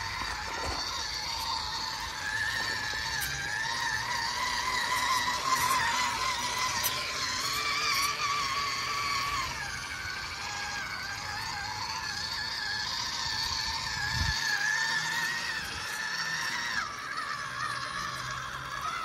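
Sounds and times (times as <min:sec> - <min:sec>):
toy truck motor whining: 0:00.0 - 0:19.0.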